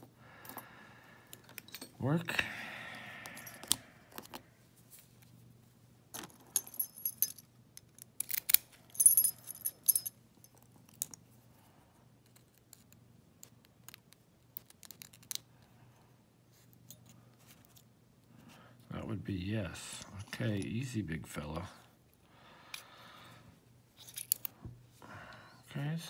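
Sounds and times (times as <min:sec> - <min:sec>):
keys jangling on a ring: 0:06.3 - 0:07.5, 0:08.2 - 0:10.6.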